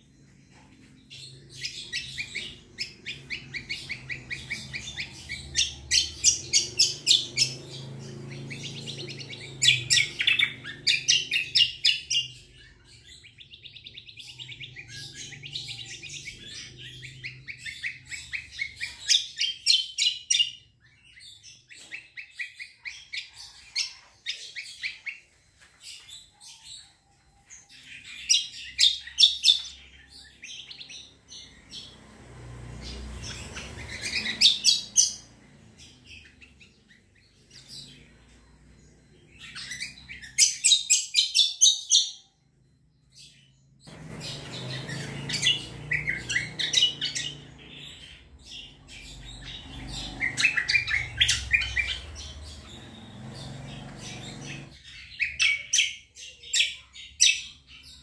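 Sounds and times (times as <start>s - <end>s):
songbird trilling: 43.2s - 58.0s.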